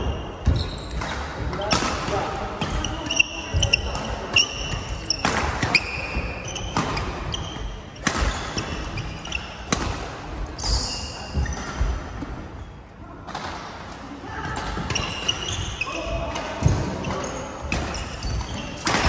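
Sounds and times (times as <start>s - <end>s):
shoes squeaking on court: 0.0s - 1.8s, 2.6s - 12.9s, 14.7s - 19.0s
rackets hitting shuttlecock: 0.4s - 10.7s, 16.3s - 19.0s.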